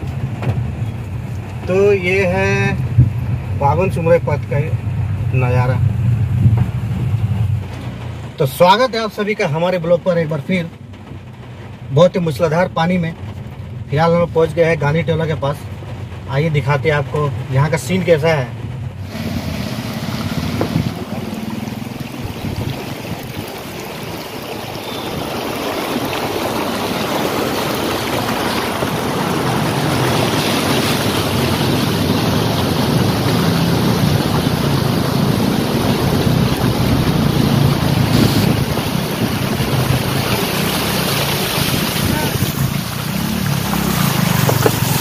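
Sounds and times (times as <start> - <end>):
tyre splashing through floodwater: 15.5 - 45.0
car engine humming: 18.6 - 45.0.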